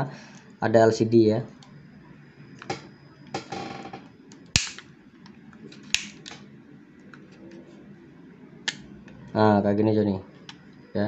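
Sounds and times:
plastic snapping: 0:04.6 - 0:04.8, 0:05.8 - 0:06.4.

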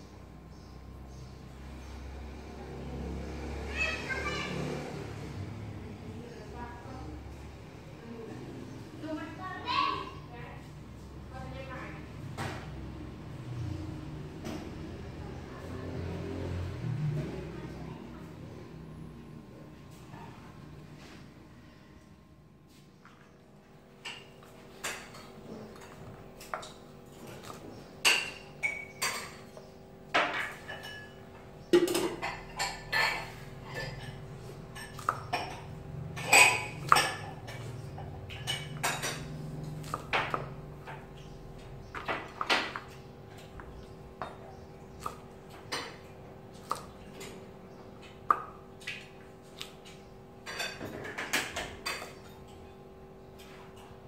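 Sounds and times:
knife chopping on board: 0:39.7 - 0:40.8.

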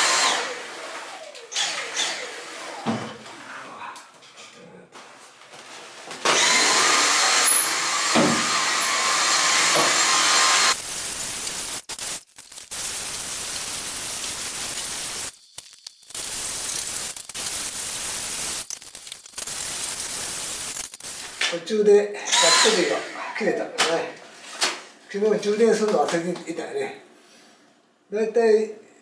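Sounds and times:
vacuum cleaner motor whine: 0:00.0 - 0:02.9, 0:06.2 - 0:10.8, 0:22.3 - 0:22.9.

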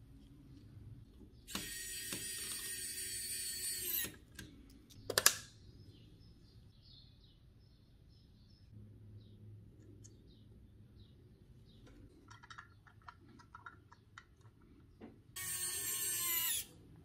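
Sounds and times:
small power tool whirring: 0:01.5 - 0:04.3, 0:15.4 - 0:16.8.

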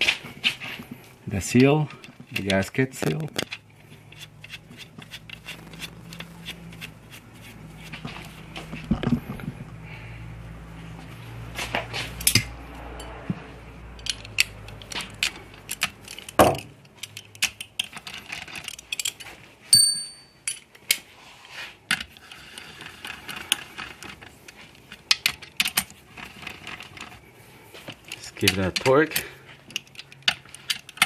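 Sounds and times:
clinks of bolts and tools: 0:14.0 - 0:21.0
ringing metallic ping: 0:19.7 - 0:20.4.

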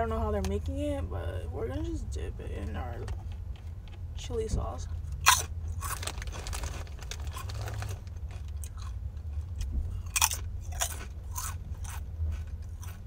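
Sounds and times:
person chewing crunchy crisps: 0:05.0 - 0:13.0.

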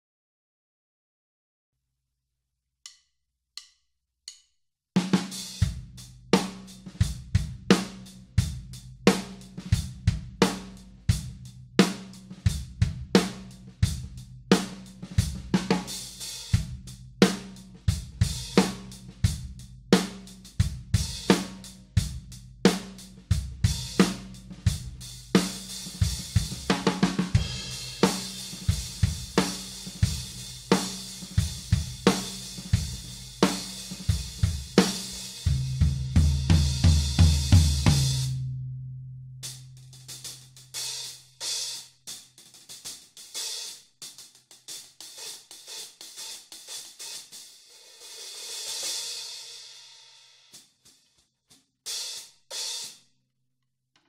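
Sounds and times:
drum kit groove: 0:05.0 - 0:38.4, 0:39.4 - 0:49.9, 0:51.9 - 0:53.0
hi-hats: 0:12.1 - 0:35.7, 0:39.8 - 0:49.1.

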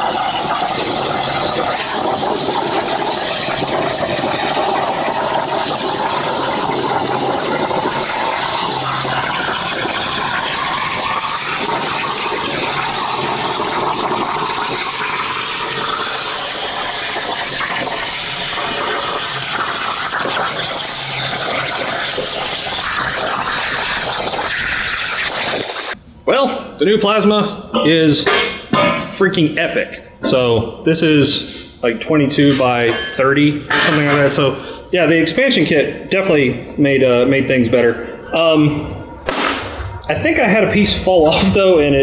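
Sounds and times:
plasma cutter arc hissing: 0:13.4 - 0:26.0.

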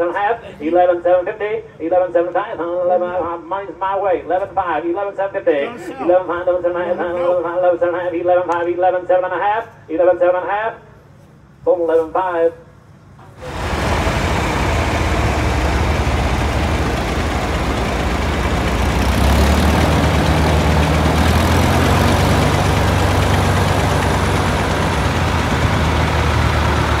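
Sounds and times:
large vehicle engine idling: 0:13.2 - 0:27.0.

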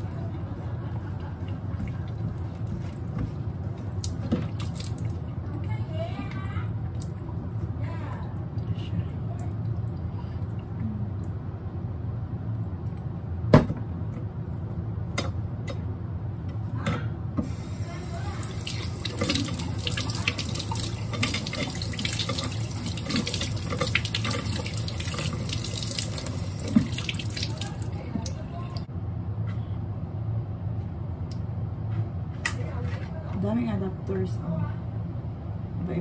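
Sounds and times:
water running from faucet: 0:04.0 - 0:05.2, 0:17.5 - 0:28.9.

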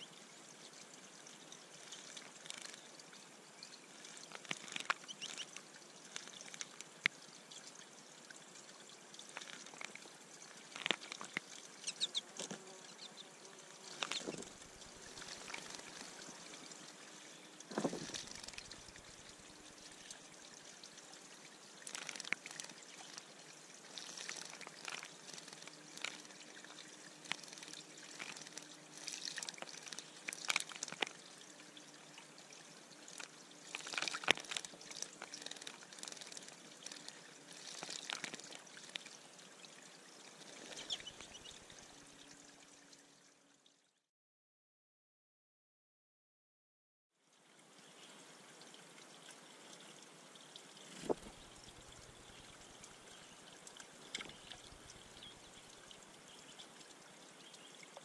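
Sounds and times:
water trickling: 0:00.0 - 0:44.1, 0:47.2 - 0:58.0
bird splashing in water: 0:10.6 - 0:13.1, 0:13.7 - 0:17.0, 0:17.6 - 0:20.1, 0:21.8 - 0:31.2, 0:33.1 - 0:39.1.

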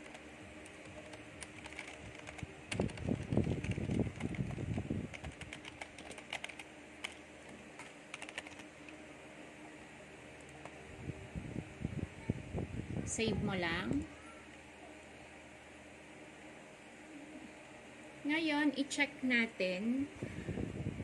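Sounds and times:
keyboard keys clicking: 0:00.0 - 0:09.0.

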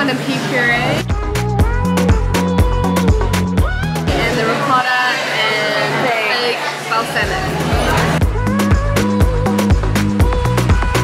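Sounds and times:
background music with beat: 0:01.0 - 0:04.6, 0:07.2 - 0:11.0.

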